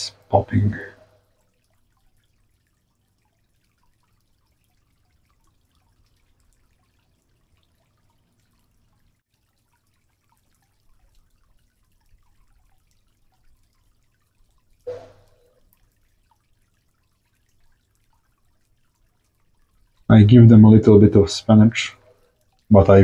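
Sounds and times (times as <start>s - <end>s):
tiny water drips: 0.0s - 23.0s
low hum: 14.8s - 15.7s.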